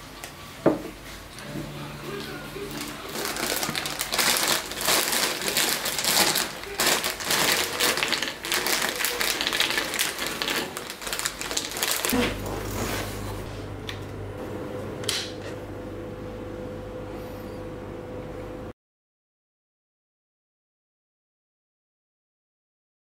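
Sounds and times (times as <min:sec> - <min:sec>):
low electrical amplifier hum: 0:00.0 - 0:18.7
plastic bag crinkling: 0:02.1 - 0:13.2.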